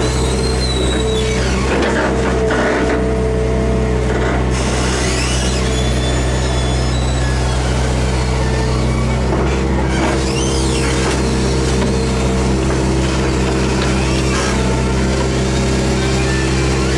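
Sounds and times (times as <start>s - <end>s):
excavator diesel engine running: 0.0s - 16.9s
higher hydraulic tones shifting: 4.1s - 16.9s.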